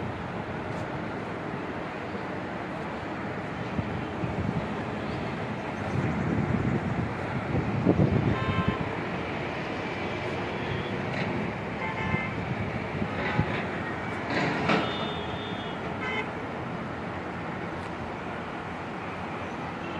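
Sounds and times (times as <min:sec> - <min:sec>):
highway traffic noise: 0:00.0 - 0:19.9
vehicle horn honks: 0:08.3 - 0:08.8, 0:11.8 - 0:12.3, 0:14.8 - 0:16.3.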